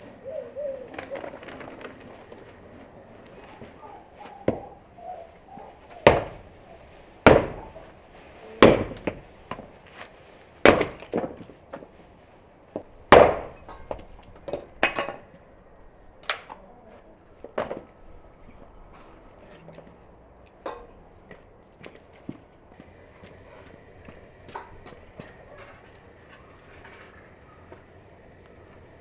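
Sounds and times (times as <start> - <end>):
firewood thrown onto heap: 10.6 - 11.9.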